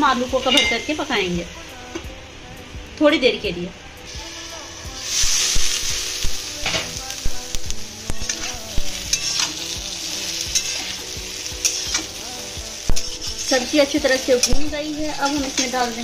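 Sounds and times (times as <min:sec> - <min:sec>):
potatoes sizzling in a pan: 0:00.0 - 0:01.8, 0:04.1 - 0:16.0
metal spatula scraping a pan: 0:08.2 - 0:09.7, 0:10.4 - 0:12.2, 0:12.9 - 0:16.0.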